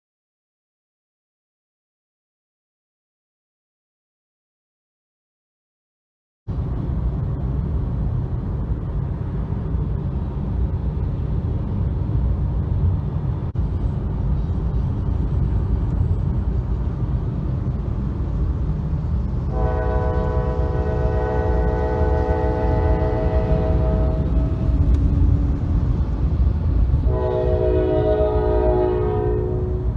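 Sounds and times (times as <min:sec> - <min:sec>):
road and wind rumble in car: 0:06.5 - 0:29.9
locomotive horn chord: 0:19.5 - 0:25.0, 0:27.0 - 0:29.9.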